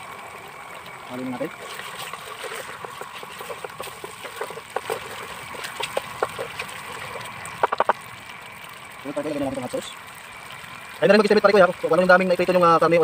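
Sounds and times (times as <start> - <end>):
sauce bubbling: 0.0 - 13.0
utensil clinking and scraping pan: 1.9 - 7.2.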